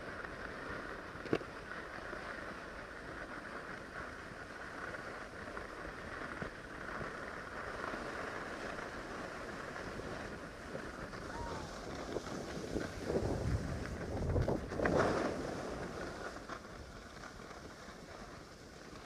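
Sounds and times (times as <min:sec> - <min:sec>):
skis sliding over snow: 0:00.0 - 0:19.0
wind on microphone: 0:08.7 - 0:17.0.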